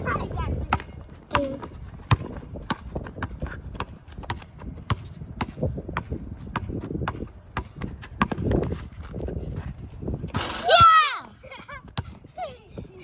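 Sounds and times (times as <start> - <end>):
basketball bouncing on court: 0.5 - 8.7.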